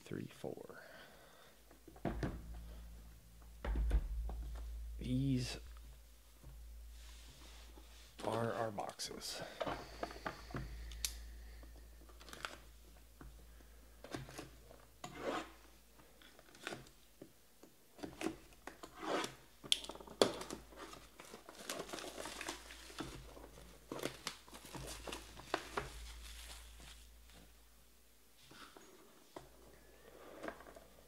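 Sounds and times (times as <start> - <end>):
plastic wrap ripping and crinkling: 19.8 - 27.4.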